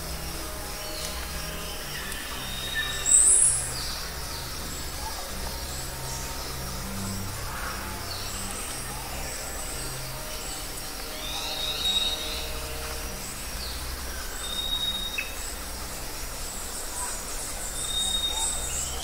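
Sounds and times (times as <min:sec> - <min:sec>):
birds whistling and chirping: 0:17.8 - 0:19.0.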